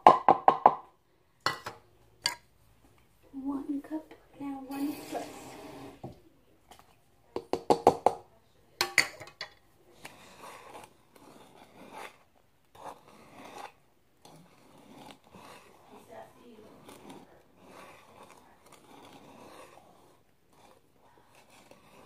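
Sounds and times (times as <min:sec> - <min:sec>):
whisk scraping batter: 0:04.5 - 0:07.9, 0:08.7 - 0:22.0.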